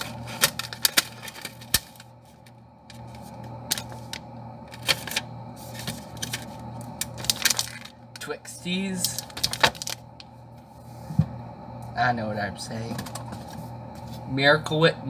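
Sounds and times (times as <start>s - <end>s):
plastic wrappers crinkling: 0.0s - 10.2s
steady low hum: 0.0s - 15.0s.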